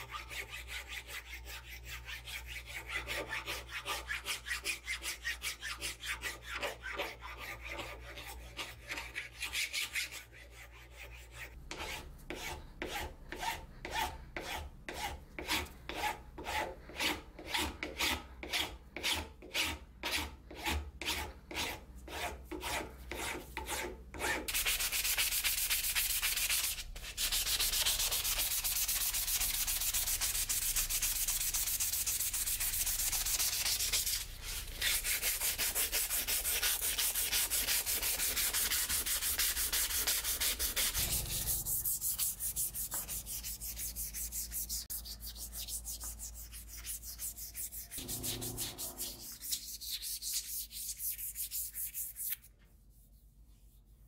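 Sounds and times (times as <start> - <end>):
file scraping steel: 0.0 - 24.6, 27.1 - 50.8
sandpaper rubbing on steel: 21.1 - 52.5.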